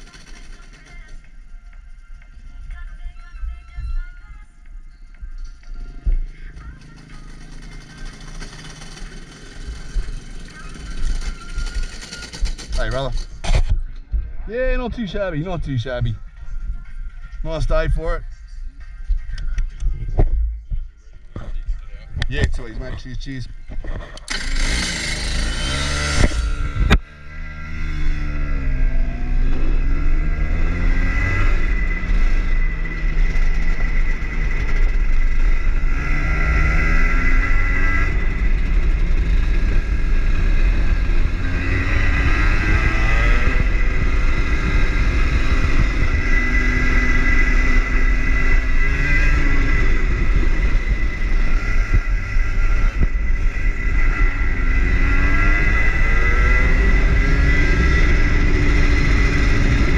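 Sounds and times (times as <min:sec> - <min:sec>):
kart engine accelerating: 0:00.0 - 0:01.3, 0:06.5 - 0:13.5, 0:24.2 - 0:59.9
steady high whine: 0:03.4 - 0:59.9.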